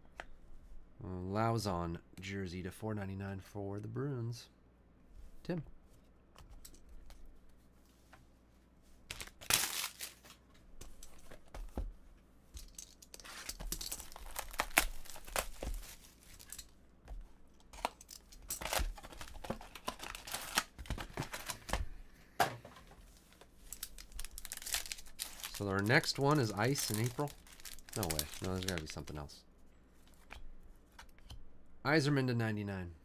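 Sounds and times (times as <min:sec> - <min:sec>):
plastic shrink-wrap tearing and crinkling: 0:09.1 - 0:10.3, 0:12.7 - 0:16.7, 0:17.8 - 0:20.8, 0:23.7 - 0:29.1.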